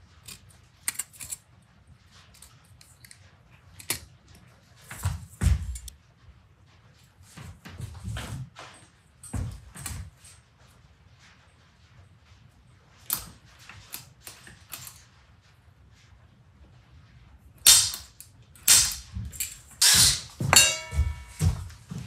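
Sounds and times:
center punch snapping on metal: 17.7s - 19.1s.

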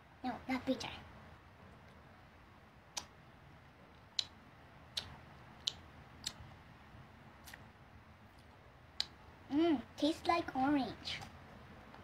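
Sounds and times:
mouth clicks: 2.9s - 3.2s, 4.1s - 6.4s, 9.0s - 9.2s.

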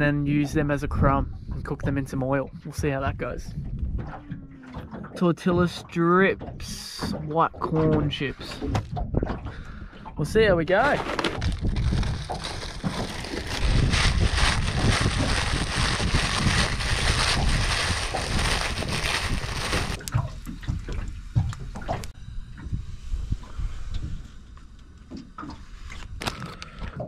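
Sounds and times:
plastic bag crinkling: 10.8s - 20.1s.

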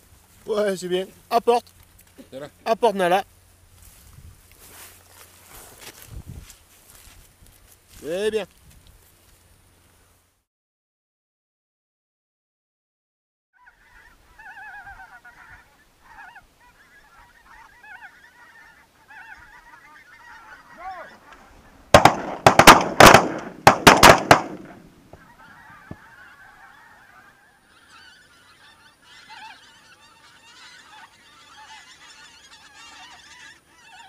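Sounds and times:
geese honking: 13.6s - 34.0s
shotgun shots: 21.9s - 24.9s.

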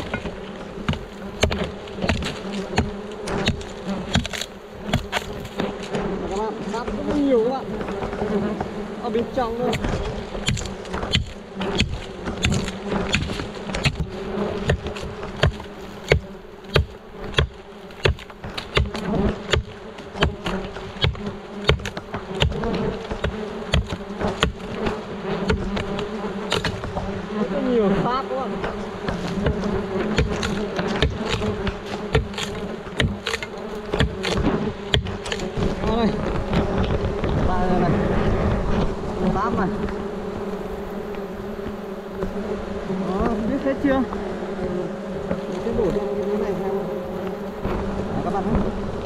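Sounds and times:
sharp taps and knocks: 0.0s - 6.0s, 9.6s - 27.1s, 28.6s - 37.5s
hornets buzzing: 0.0s - 49.0s.

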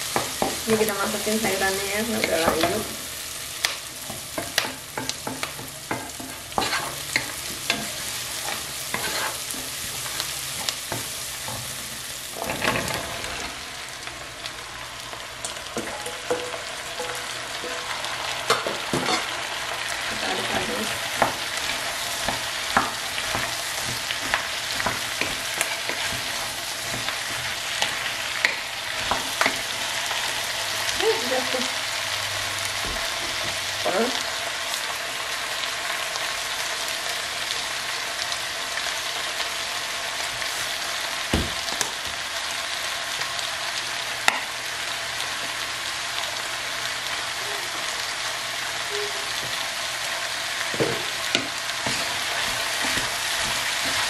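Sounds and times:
vegetables sizzling in oil: 0.0s - 54.0s
wooden spatula stirring and scraping: 4.1s - 13.6s, 20.0s - 31.6s, 50.7s - 54.0s.

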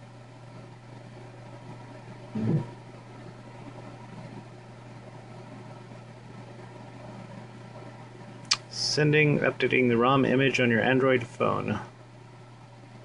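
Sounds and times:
low electrical hum: 0.0s - 13.0s
brief low vocal sound: 2.4s - 2.7s.

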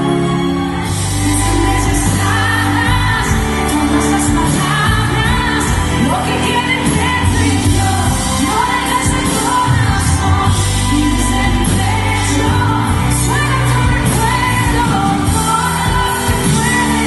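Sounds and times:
heavy bass: 0.0s - 17.0s
live pop band playing: 0.0s - 17.0s
woman singing lead: 0.0s - 17.0s.

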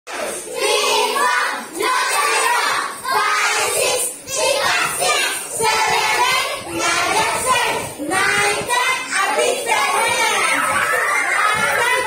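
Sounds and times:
young children singing in unison: 0.1s - 12.0s.

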